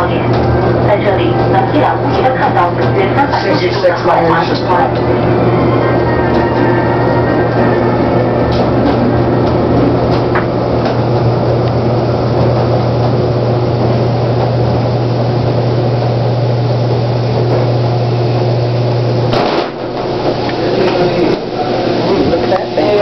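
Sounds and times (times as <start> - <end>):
elevator hum with rushing: 0.0 - 23.0.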